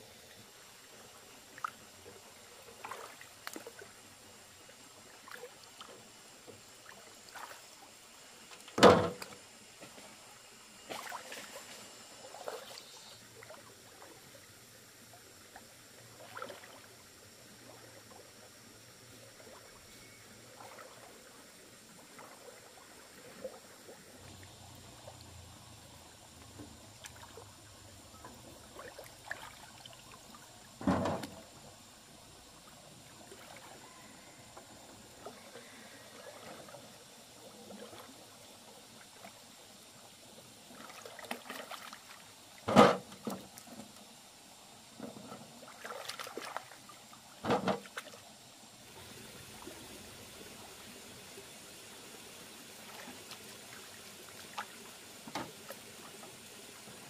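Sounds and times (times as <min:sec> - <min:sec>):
river water lapping and trickling: 0:00.0 - 0:57.0
small splashes: 0:02.7 - 0:03.9, 0:06.8 - 0:07.8, 0:10.9 - 0:12.8, 0:16.2 - 0:16.9, 0:28.7 - 0:30.4, 0:40.7 - 0:43.8, 0:45.6 - 0:48.2, 0:52.8 - 0:56.2.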